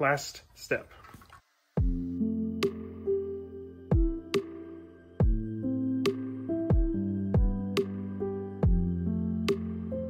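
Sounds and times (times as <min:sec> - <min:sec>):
kick drum thuds: 0:01.8 - 0:02.0, 0:03.9 - 0:04.2, 0:05.2 - 0:05.5, 0:06.7 - 0:07.7, 0:08.6 - 0:08.9.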